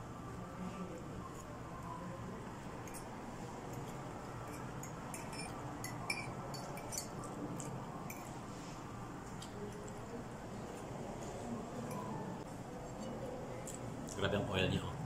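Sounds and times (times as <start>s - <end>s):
low room hum: 0.0s - 15.0s
cutlery clinking against a plate: 2.8s - 3.1s, 3.7s - 8.4s.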